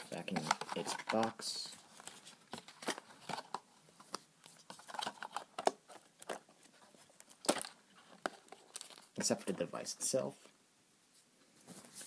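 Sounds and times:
plastic packaging clicks and crinkles: 2.0s - 6.5s, 7.2s - 9.2s.

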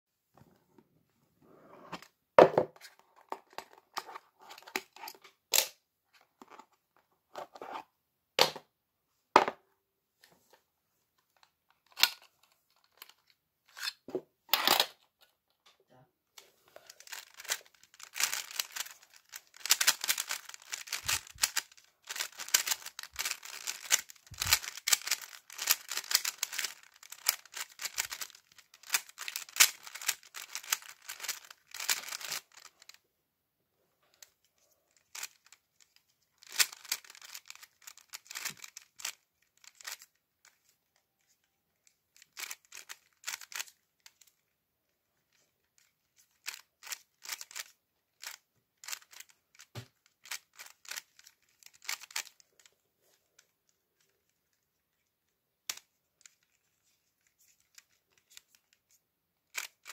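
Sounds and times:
plastic puzzle cube clicking: 16.8s - 33.0s, 34.9s - 41.4s, 42.2s - 44.5s, 45.8s - 52.8s, 55.7s - 59.9s.

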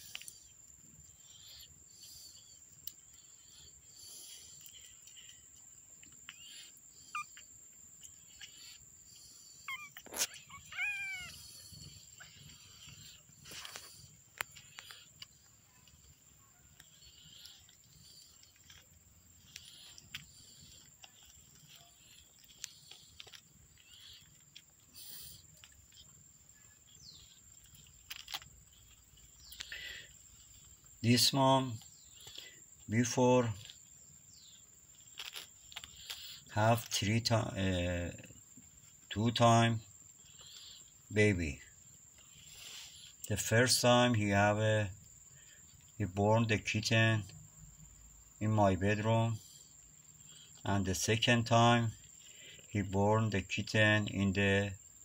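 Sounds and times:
faint insect trill: 0.0s - 55.0s
kitten mewing: 9.6s - 13.2s.

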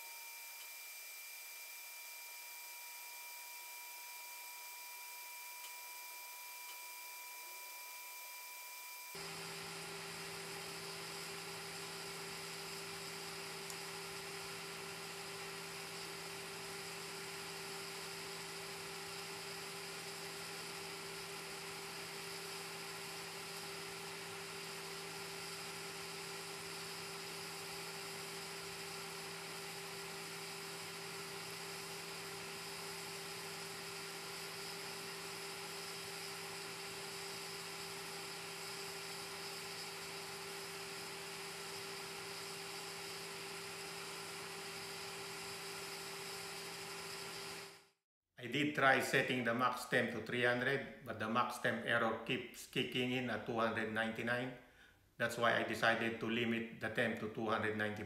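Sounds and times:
cooling fan whirring: 9.1s - 46.4s.

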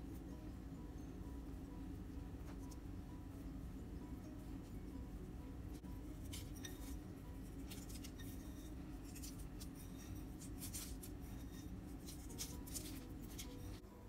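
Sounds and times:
low hum: 0.0s - 14.0s
fingers scratching seeds in a bowl: 5.9s - 13.8s.

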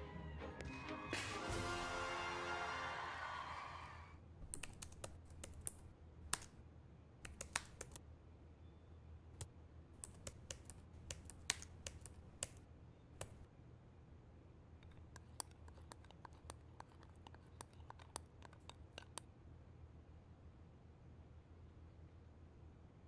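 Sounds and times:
orchestral music: 0.0s - 3.7s
typing on computer keyboard: 4.4s - 6.5s, 7.3s - 8.0s, 10.0s - 12.6s, 14.8s - 19.2s.

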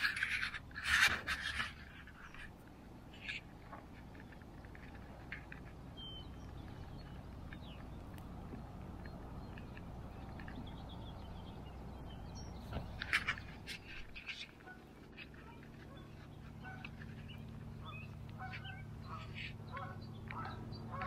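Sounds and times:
low outdoor rumble: 0.0s - 21.0s
waterfowl calling: 12.6s - 21.0s.

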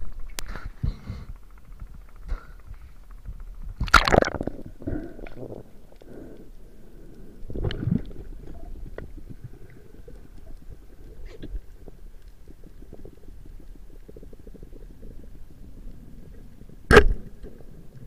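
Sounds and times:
muffled underwater gurgling: 2.2s - 18.0s
loud splash and gurgle: 3.8s - 4.6s.

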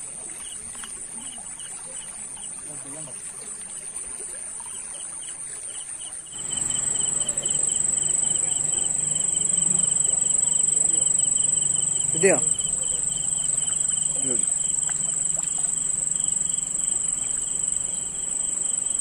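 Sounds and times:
crickets trilling: 3.8s - 19.0s
insect pulsing: 6.3s - 19.0s.

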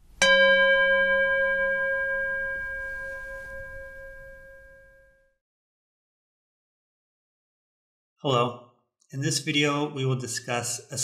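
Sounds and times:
bell ringing: 0.2s - 5.2s.

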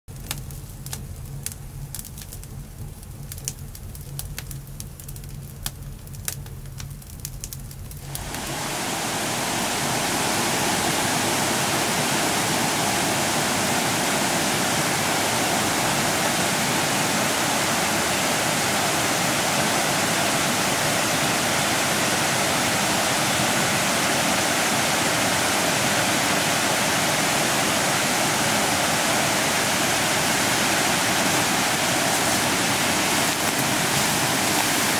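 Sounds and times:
wood fire crackling and popping: 0.1s - 8.5s, 31.7s - 34.9s
stream rushing over cascades: 8.0s - 34.9s.

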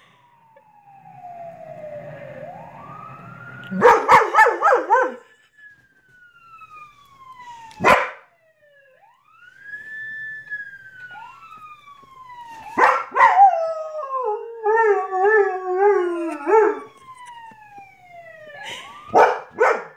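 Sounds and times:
siren wailing: 0.0s - 19.9s
dog barking: 3.8s - 5.3s, 7.8s - 8.2s, 12.8s - 13.4s, 19.1s - 19.9s.

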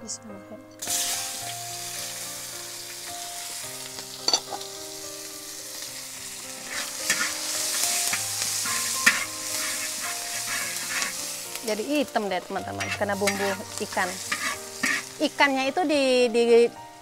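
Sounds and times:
garlic sizzling in hot oil: 0.8s - 17.0s
metal spatula scraping wok: 3.4s - 4.7s, 6.4s - 15.4s.

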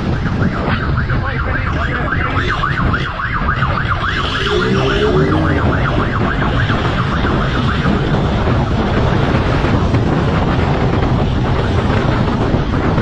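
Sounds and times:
wind: 0.0s - 13.0s
siren yelping: 1.4s - 7.6s
motorcycle engine rumbling: 3.8s - 6.4s.

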